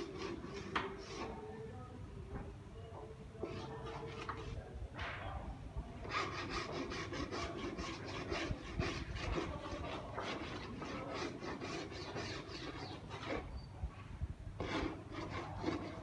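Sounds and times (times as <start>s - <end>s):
rhythmic rasping strokes: 6.0s - 13.5s.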